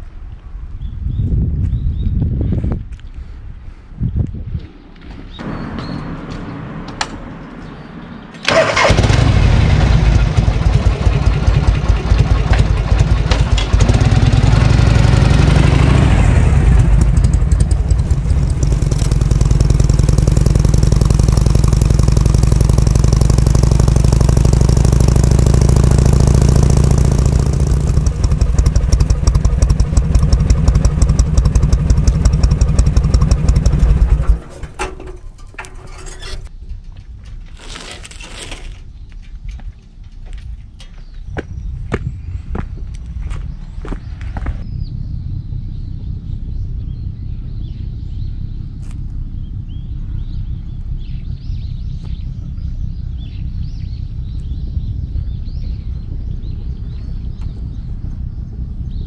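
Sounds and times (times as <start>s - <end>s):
motorcycle engine starting and idling: 8.3s - 38.9s.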